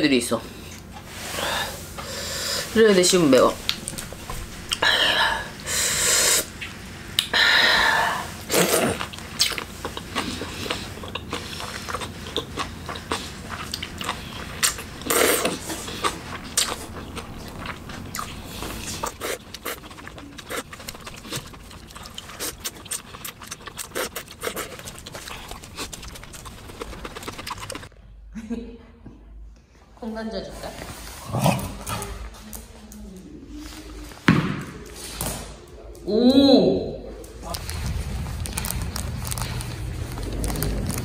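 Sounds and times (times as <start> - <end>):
slurping noodles: 8.0 - 27.9
chewing: 8.5 - 27.9, 37.5 - 41.0.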